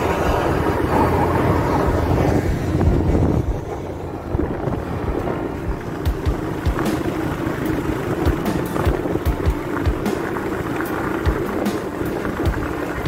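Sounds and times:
wind rushing over microphone: 0.0 - 10.3
motorcycle engine running: 0.0 - 13.0.

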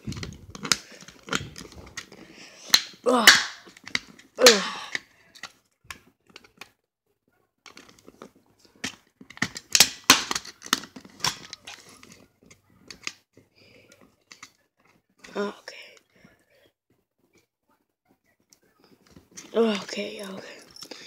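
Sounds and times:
plastic case being pried open: 8.8 - 12.2.

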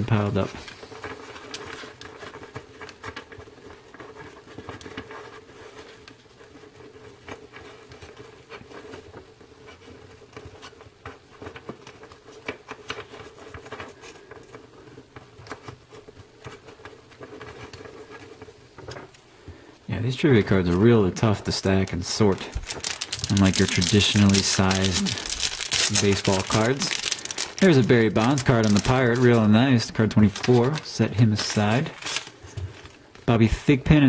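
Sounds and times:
cards clicking and scraping: 21.6 - 33.3.

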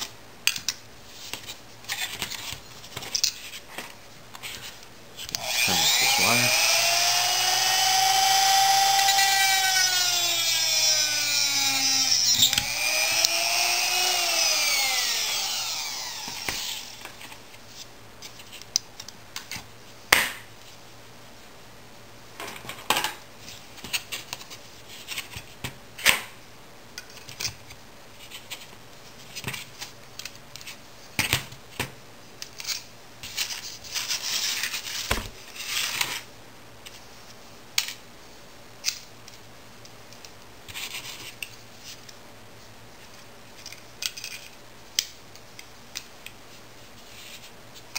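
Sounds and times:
rotary tool whining: 5.3 - 17.2.

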